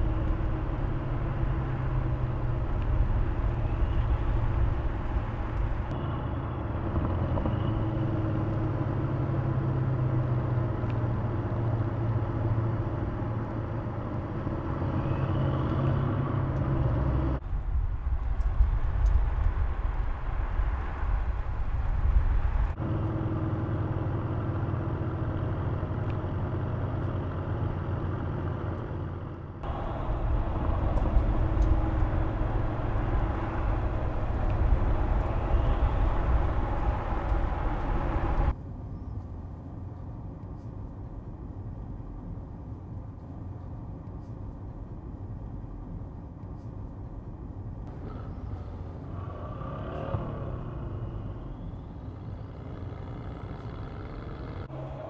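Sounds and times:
tyre and road noise: 0.0s - 55.0s
car engine running: 27.6s - 38.5s.

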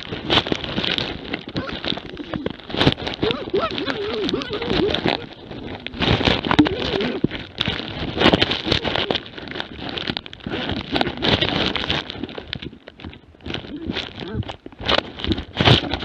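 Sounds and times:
brush scraping against camera: 0.0s - 16.0s
dog whining cries: 3.2s - 5.4s.

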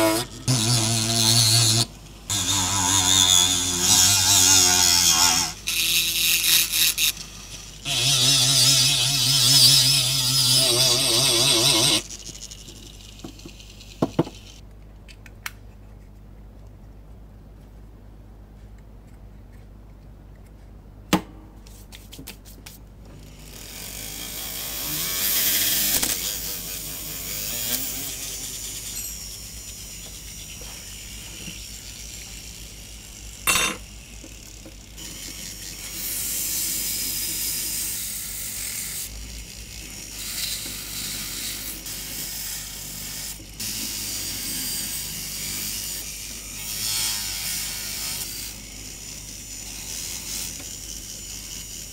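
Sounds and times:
grinding on metal: 0.0s - 13.4s, 33.4s - 33.8s.

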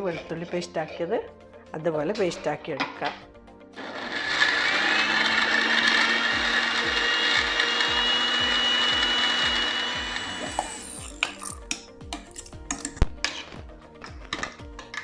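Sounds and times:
mixer grinder whirring: 3.8s - 11.4s.

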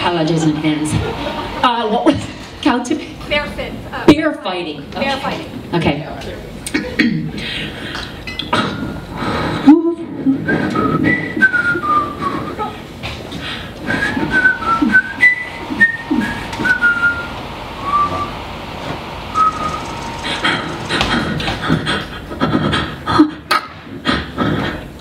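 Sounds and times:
clicking mouth noises: 7.9s - 8.7s
person whistling sliding notes: 10.4s - 12.7s, 13.8s - 21.4s.

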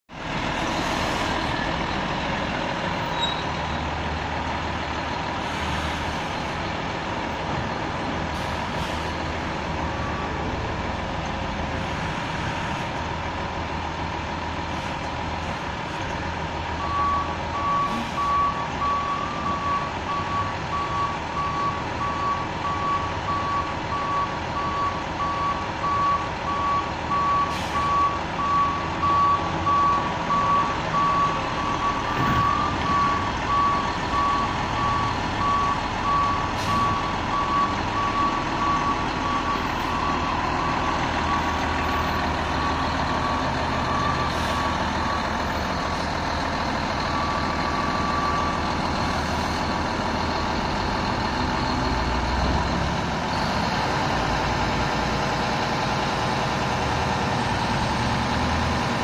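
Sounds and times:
diesel engine running: 0.1s - 59.0s
reversing alarm beeping: 10.0s - 10.5s, 16.8s - 45.8s, 47.0s - 49.8s.

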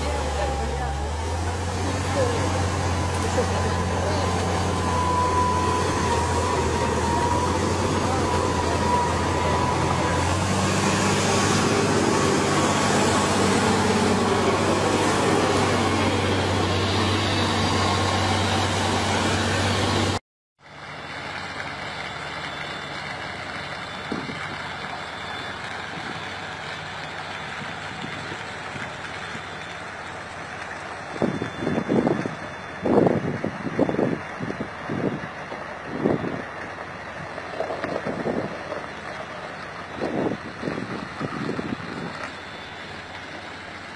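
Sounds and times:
dozer blade pushing through trees: 0.0s - 20.2s
heavy tracked vehicle engine running: 0.0s - 43.9s
heavy truck rumble: 0.0s - 43.9s.

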